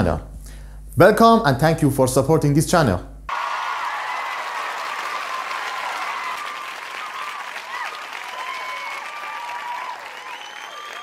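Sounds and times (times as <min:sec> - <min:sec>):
crowd applauding: 0:03.3 - 0:11.0
voices cheering: 0:03.3 - 0:11.0.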